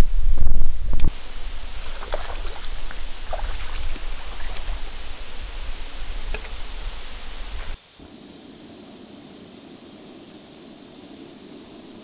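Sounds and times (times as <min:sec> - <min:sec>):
creek water running: 0:01.1 - 0:07.8
light splashes from wading: 0:01.2 - 0:07.8.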